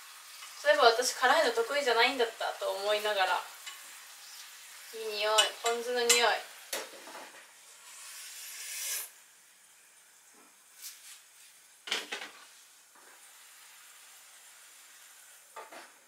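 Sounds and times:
hiss: 4.0s - 5.3s, 7.6s - 9.3s, 12.4s - 16.0s.

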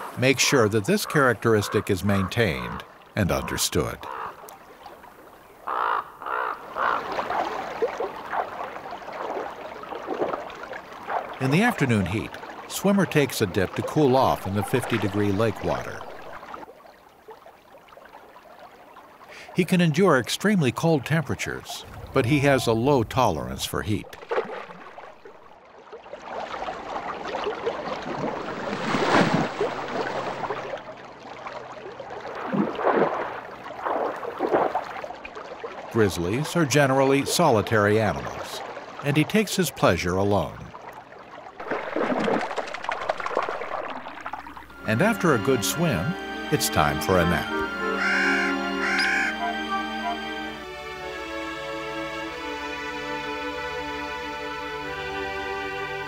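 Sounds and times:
crow cawing: 3.4s - 4.4s, 5.6s - 7.1s, 47.9s - 49.6s
bear splashing in water: 5.7s - 12.7s, 26.1s - 31.0s, 31.6s - 36.0s, 41.6s - 44.7s.

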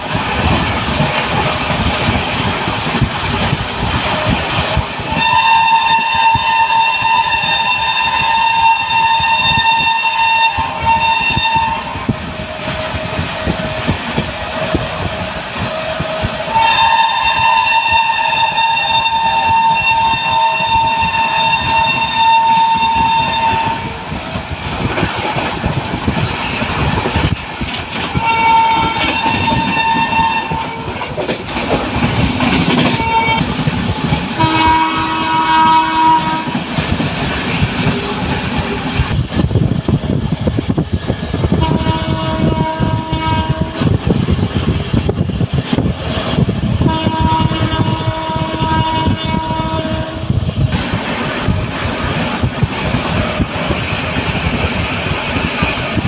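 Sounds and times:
train running on rails: 0.0s - 56.0s
train horn blasts: 5.1s - 12.2s, 15.7s - 24.0s, 28.2s - 31.0s, 32.8s - 33.4s, 34.4s - 36.6s, 41.5s - 44.0s, 46.8s - 50.4s.

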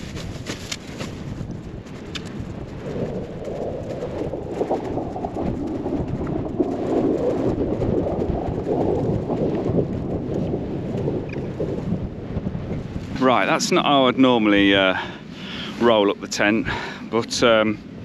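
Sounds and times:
nylon tent flysheet rustling: 0.0s - 5.8s
wind buffeting microphone: 0.0s - 18.0s.

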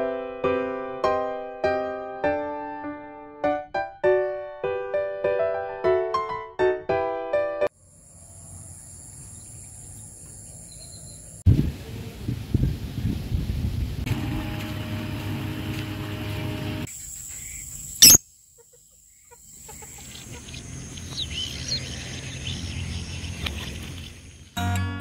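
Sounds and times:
birds chirping: 8.3s - 11.4s, 17.0s - 24.6s.

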